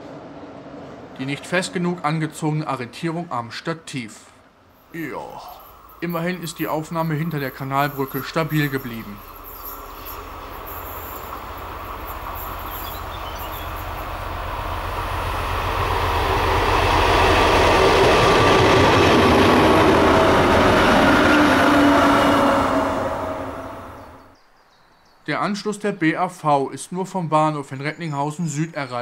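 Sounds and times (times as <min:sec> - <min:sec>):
diesel locomotive engine: 0:00.0 - 0:03.6, 0:04.7 - 0:24.4
train wheels rolling on rails: 0:04.8 - 0:24.2.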